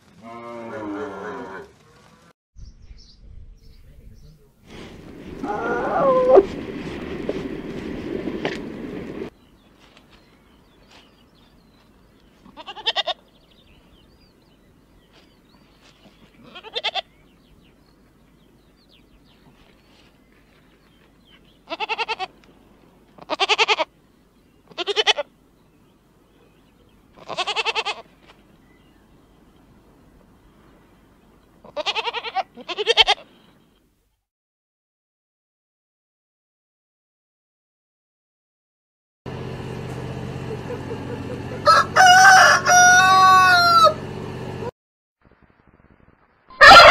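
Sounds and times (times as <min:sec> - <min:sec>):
goat kids bleating: 0:12.4 - 0:13.2, 0:16.3 - 0:17.2, 0:21.6 - 0:22.4, 0:23.2 - 0:23.9, 0:24.7 - 0:25.3, 0:27.2 - 0:28.1, 0:31.6 - 0:33.3.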